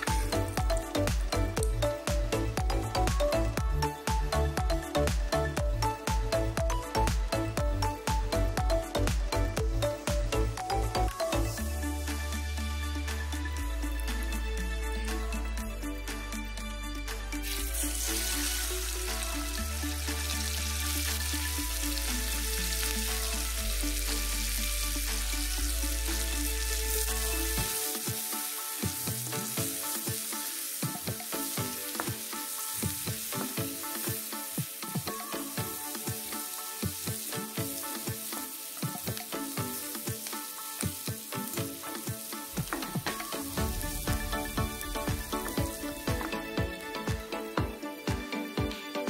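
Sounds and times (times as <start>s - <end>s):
background music: 0.0s - 49.0s
onions sizzling in hot oil: 17.4s - 46.5s.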